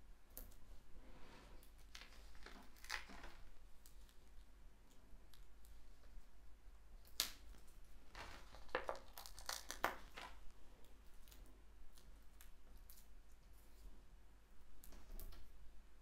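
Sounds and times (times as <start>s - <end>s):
paper rustling and crinkling: 8.0s - 10.4s.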